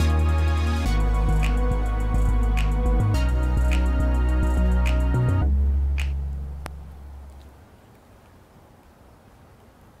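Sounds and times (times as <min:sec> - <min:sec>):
faint steady hiss: 0:00.0 - 0:10.0.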